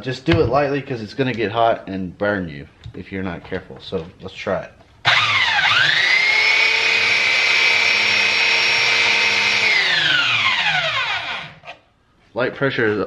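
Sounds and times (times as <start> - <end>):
belt sander motor whine: 5.1 - 11.6.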